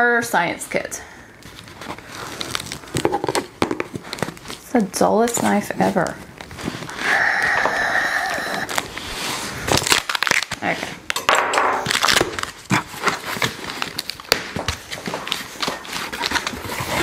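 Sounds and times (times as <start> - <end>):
paper packing crinkling: 1.4 - 7.0, 8.6 - 11.2, 11.8 - 17.0
tape tearing: 1.5 - 7.0, 8.6 - 11.2, 11.8 - 17.0.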